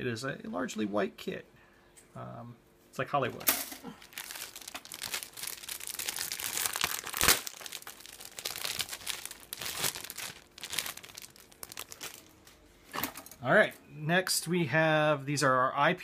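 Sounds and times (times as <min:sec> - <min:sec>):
plastic bags crinkling: 0:03.9 - 0:12.6.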